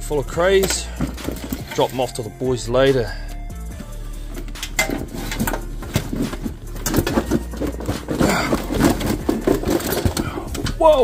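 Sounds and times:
shells clattering on metal sink: 0:00.6 - 0:02.0
plastic bag rustling: 0:05.0 - 0:10.7.

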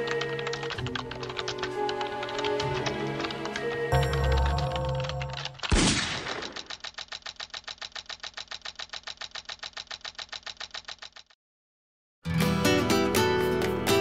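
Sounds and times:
rapid keyboard key clicking: 0:00.0 - 0:11.4
revolver gunshot: 0:05.7 - 0:06.6.

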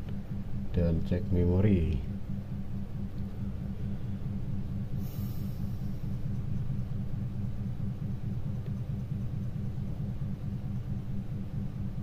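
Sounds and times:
low background rumble: 0:00.0 - 0:12.0
short hiss: 0:05.0 - 0:05.8.

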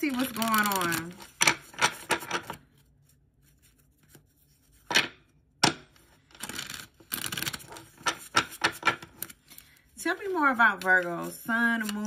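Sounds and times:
cards riffle shuffling: 0:00.0 - 0:02.8.

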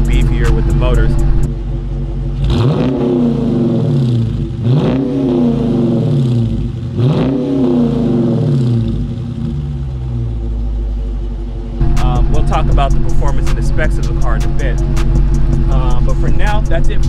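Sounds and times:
engine idle rumble: 0:00.0 - 0:04.7, 0:08.6 - 0:17.0
car engine revving: 0:00.0 - 0:17.0.

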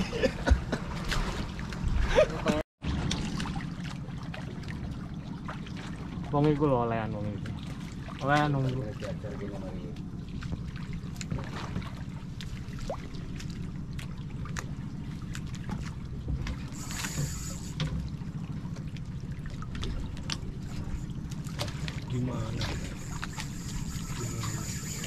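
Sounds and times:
boat engine rumble: 0:00.0 - 0:25.0
water splashing: 0:00.0 - 0:25.0
brief high hiss: 0:16.8 - 0:17.8.

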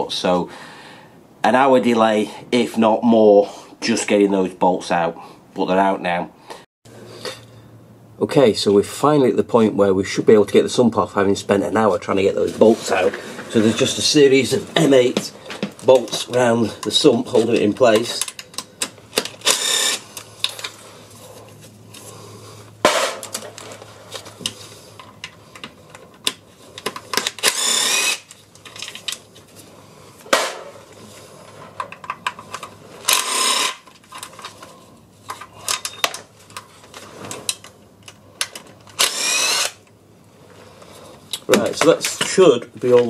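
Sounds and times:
cordless power driver whirring: 0:19.1 - 0:20.7, 0:27.1 - 0:28.4, 0:33.0 - 0:33.9, 0:38.9 - 0:39.8.

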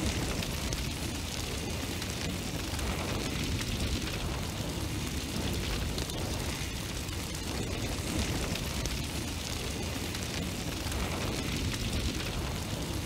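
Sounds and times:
deep rumble: 0:00.0 - 0:13.0
flames roaring and crackling: 0:00.0 - 0:13.0.

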